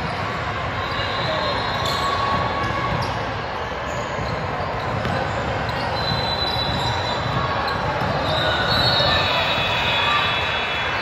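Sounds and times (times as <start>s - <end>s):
sports hall hubbub: 0.0s - 11.0s
ball bouncing: 4.2s - 5.7s.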